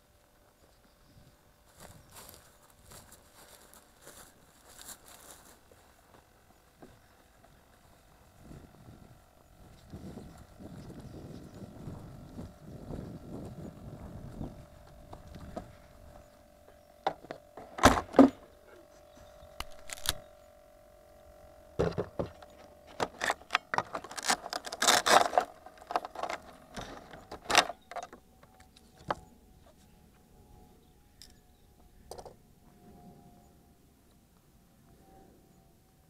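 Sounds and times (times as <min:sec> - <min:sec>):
faint steady whine: 0:00.0 - 0:36.0
knocks and rattles on wooden bench: 0:21.8 - 0:23.1.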